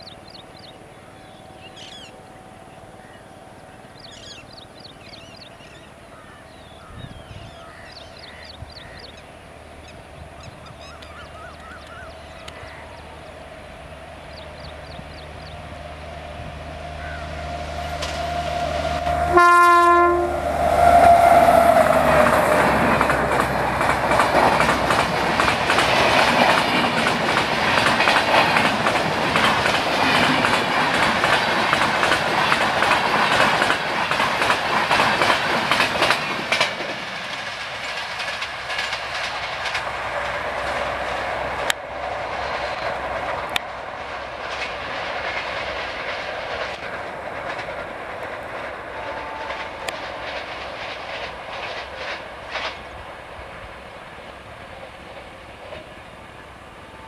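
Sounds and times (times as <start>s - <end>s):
locomotive whine: 0.0s - 57.0s
train coaches rumbling past: 0.0s - 57.0s
train horn blast: 15.7s - 22.8s, 48.8s - 50.2s
wheels clacking over rails: 20.4s - 53.3s.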